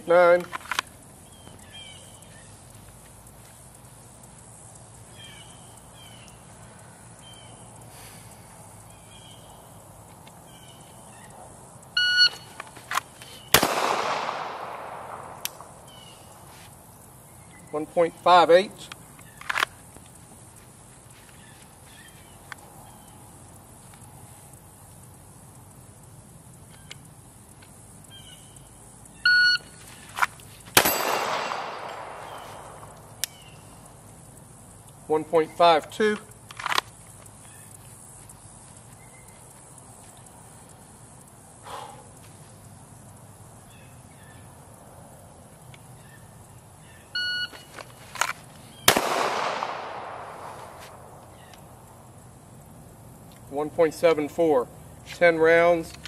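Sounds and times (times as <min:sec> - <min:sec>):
pistol shot with echo: 0:13.5 - 0:15.8, 0:30.8 - 0:33.0, 0:48.8 - 0:50.8.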